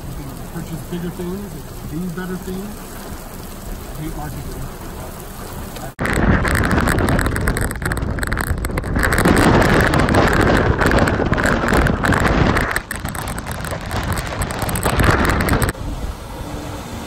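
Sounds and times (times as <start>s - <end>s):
road noise on wet highway: 0.0s - 17.0s
wind noise on microphone: 5.5s - 17.0s.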